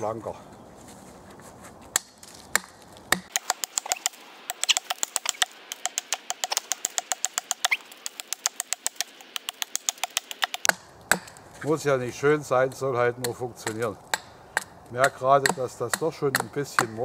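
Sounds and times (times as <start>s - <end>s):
hatchet chopping wood: 1.9s - 11.4s, 13.2s - 17.0s.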